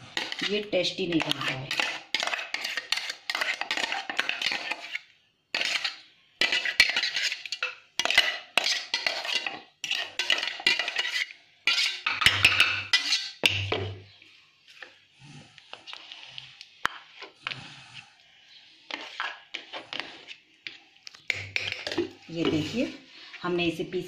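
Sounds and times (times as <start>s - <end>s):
metal utensil scraping steel jar: 0.1s - 13.8s.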